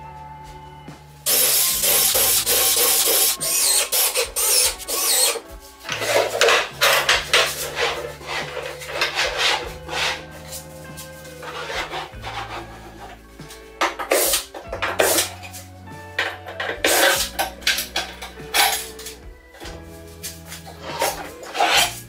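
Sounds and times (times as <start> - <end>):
cordless drill driving screws: 1.3 - 6.6
wooden cabinet scraping: 1.8 - 22.0.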